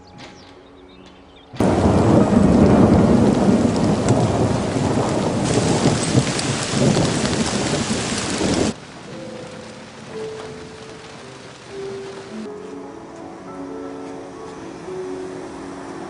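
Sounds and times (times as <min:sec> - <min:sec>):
thunder rumbling: 0:01.6 - 0:12.5
heavy rain downpour: 0:01.6 - 0:16.0.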